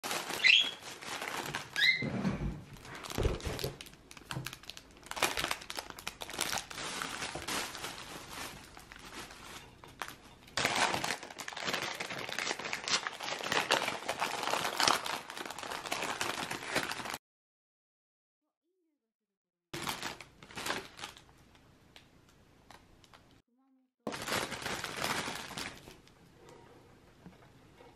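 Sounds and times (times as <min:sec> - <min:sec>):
plastic bag crinkling and rustling: 0:00.0 - 0:17.2, 0:19.8 - 0:21.5, 0:24.1 - 0:26.2.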